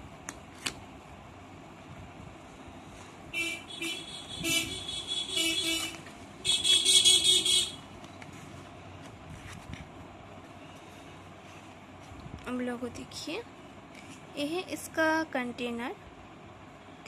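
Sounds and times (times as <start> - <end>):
vehicle horns honking: 3.3 - 7.8.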